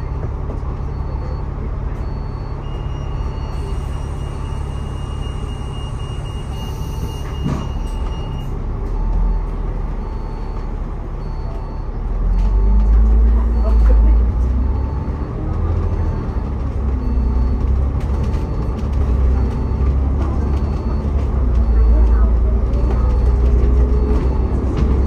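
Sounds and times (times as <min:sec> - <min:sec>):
vehicle rumble on board: 0:00.0 - 0:25.0.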